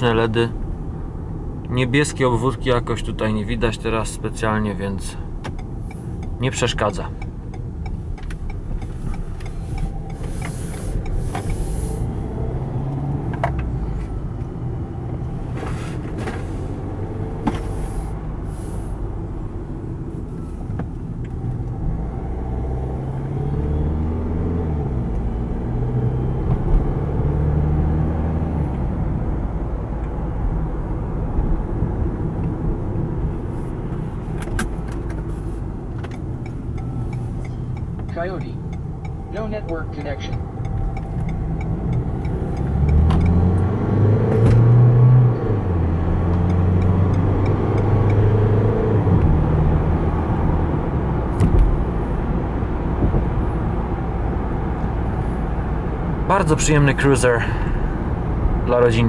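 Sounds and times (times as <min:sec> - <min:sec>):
car engine and road rumble: 0:00.0 - 0:59.0
short hisses: 0:10.2 - 0:12.1.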